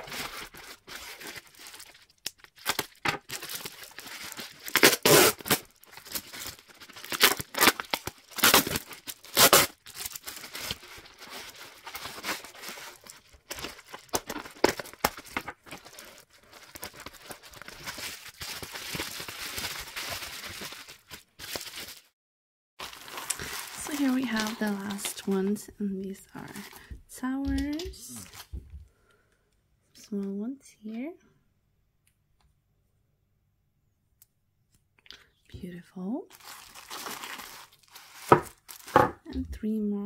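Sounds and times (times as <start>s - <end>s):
bubble wrap tearing and crinkling: 0.0s - 22.2s, 22.8s - 25.7s, 26.3s - 27.0s, 27.7s - 28.6s, 36.3s - 39.2s.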